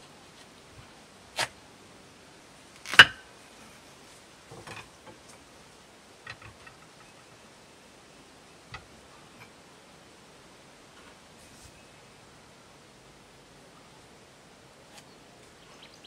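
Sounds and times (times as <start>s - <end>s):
watermelon cracking: 2.8s - 3.2s.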